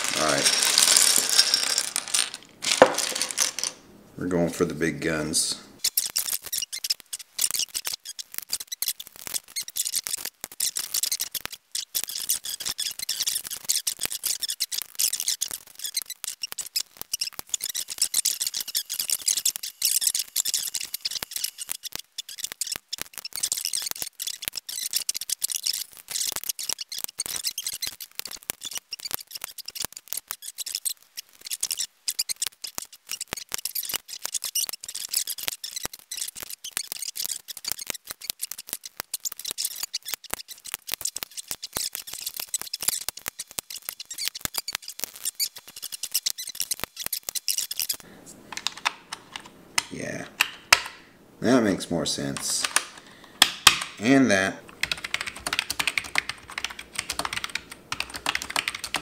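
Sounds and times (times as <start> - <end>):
keycaps clicking onto keyboard: 48.5 - 50.9, 54.7 - 59.0.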